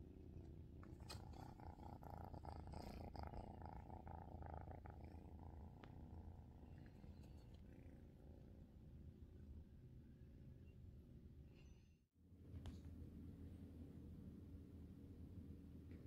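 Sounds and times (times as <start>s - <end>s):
kitten purring: 0.2s - 8.6s.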